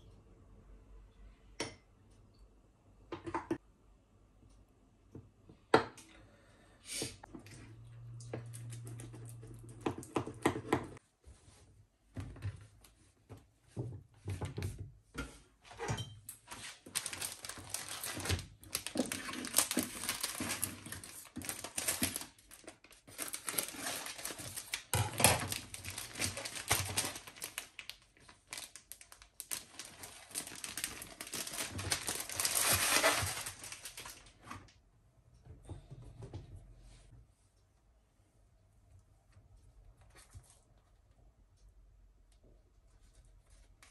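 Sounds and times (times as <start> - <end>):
plastic wrapper crinkling: 16.4 - 34.5.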